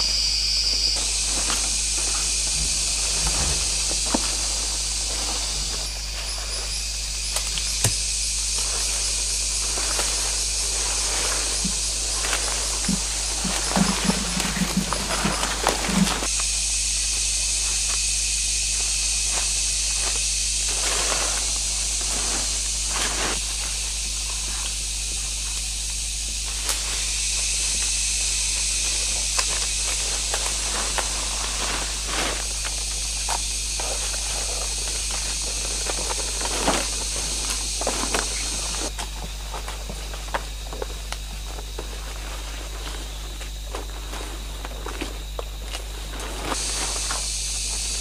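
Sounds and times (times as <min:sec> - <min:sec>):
insects buzzing: 0:00.0 - 0:48.0
rustling in undergrowth: 0:00.0 - 0:48.0
footsteps on dry leaves: 0:00.8 - 0:16.7, 0:17.5 - 0:48.0.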